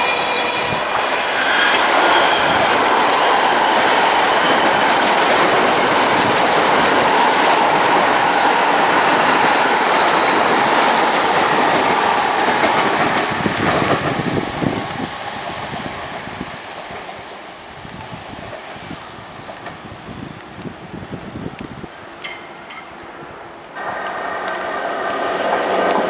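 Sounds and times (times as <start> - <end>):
train rushing past: 0.0 - 20.2, 22.3 - 26.0
clickety-clack over rail joints: 5.3 - 16.2, 19.4 - 19.9, 21.6 - 23.1, 23.8 - 26.0.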